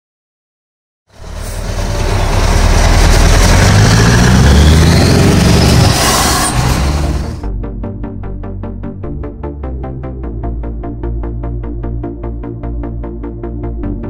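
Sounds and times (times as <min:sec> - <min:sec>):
truck engine revving: 0:01.1 - 0:07.5.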